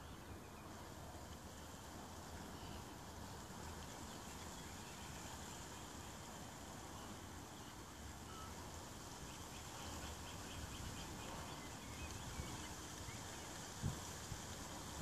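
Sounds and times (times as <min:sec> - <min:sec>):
wind rumbling on microphone: 0:10.5 - 0:15.0.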